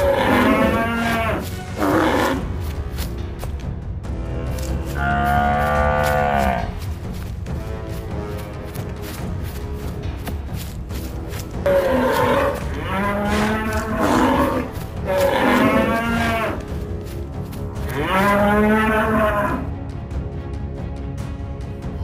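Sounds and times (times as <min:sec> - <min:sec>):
cattle mooing: 0:00.0 - 0:02.5, 0:04.9 - 0:06.7, 0:11.6 - 0:16.6, 0:17.8 - 0:19.7.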